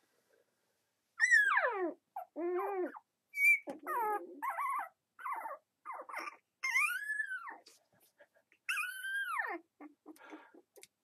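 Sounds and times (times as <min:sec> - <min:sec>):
puppy howling and whining: 0:01.2 - 0:07.6, 0:08.7 - 0:10.0.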